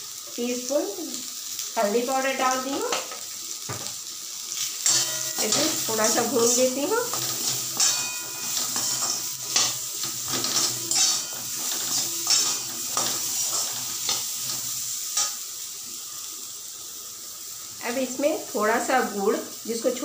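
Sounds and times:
food sizzling in oil: 0.0 - 20.0
spoon scraping a steel pan: 4.9 - 15.3.

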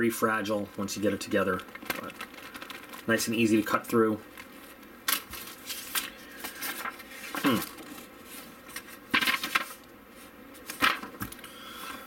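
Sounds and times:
paper rustling and flapping: 0.5 - 11.4.

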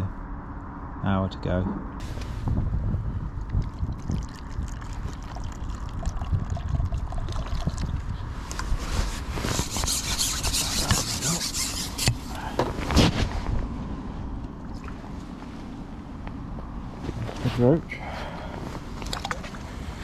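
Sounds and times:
wind rumble on microphone: 0.0 - 11.4, 12.0 - 20.0
water splashing and trickling: 3.3 - 8.2, 14.6 - 15.2, 19.0 - 19.7.

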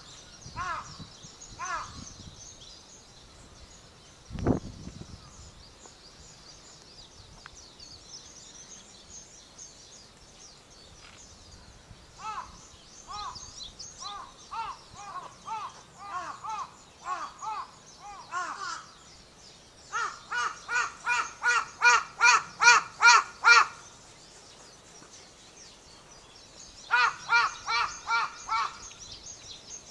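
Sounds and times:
small birds chirping: 0.0 - 29.9
crow cawing: 0.6 - 0.9, 1.6 - 2.0, 12.2 - 13.4, 14.0 - 18.9, 19.9 - 23.8, 26.9 - 28.9.

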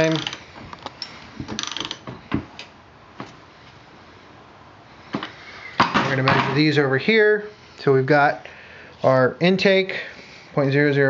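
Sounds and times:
ratchet wrench clicking: 0.0 - 0.4, 1.6 - 2.0.

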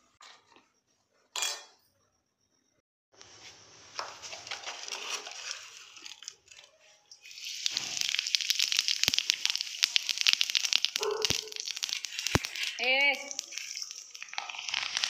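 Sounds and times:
seeds sizzling and popping in oil: 3.8 - 15.0.

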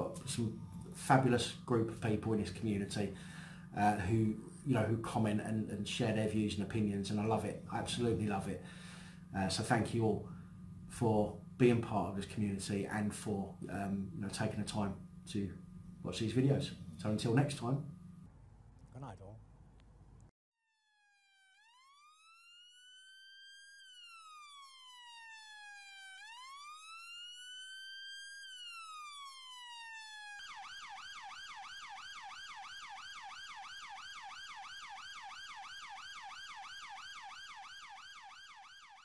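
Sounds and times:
electronic siren wailing and yelping: 20.7 - 39.0.

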